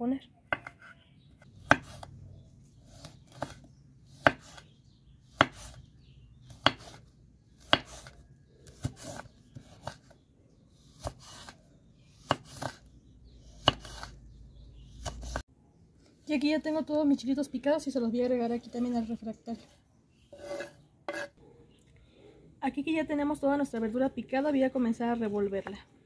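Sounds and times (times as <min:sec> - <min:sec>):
knife chopping on wooden board: 0:00.5 - 0:00.9, 0:01.6 - 0:02.1, 0:02.9 - 0:04.7, 0:05.3 - 0:05.8, 0:06.5 - 0:07.0, 0:07.6 - 0:10.1, 0:12.2 - 0:12.8, 0:13.6 - 0:14.1.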